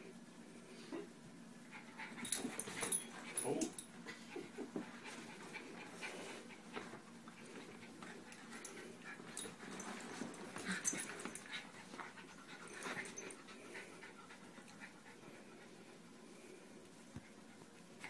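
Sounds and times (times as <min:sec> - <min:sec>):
dogs panting: 0:01.7 - 0:16.1
dogs scuffling on sofa: 0:04.8 - 0:13.4.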